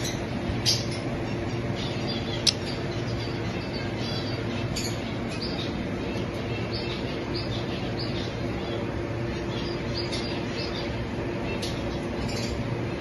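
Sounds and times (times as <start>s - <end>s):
lovebirds chirping: 0.0s - 13.0s
steady background hum: 0.0s - 13.0s.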